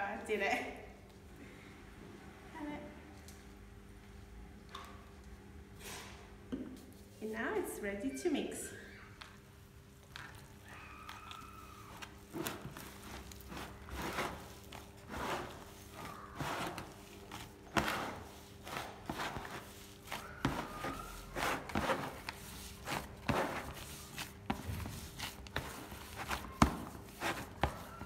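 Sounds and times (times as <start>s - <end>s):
hand squishing wet dough: 8.9s - 28.0s.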